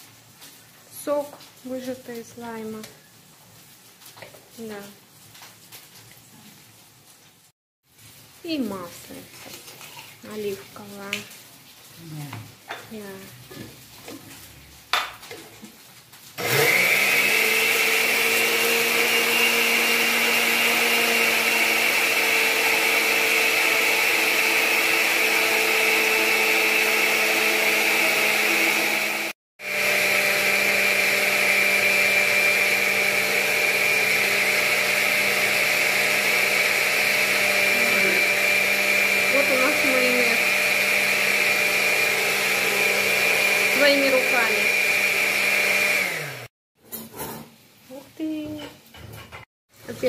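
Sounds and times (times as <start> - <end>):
blender motor hum: 16.4 - 46.5.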